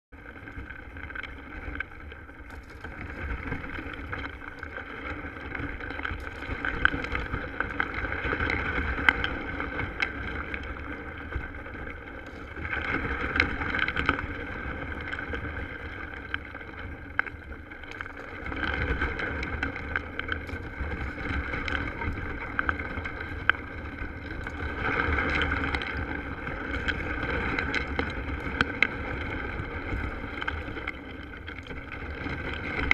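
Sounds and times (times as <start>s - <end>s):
kayak hull scraping through ice: 0.2s - 32.9s
ice cracking: 1.2s - 11.2s.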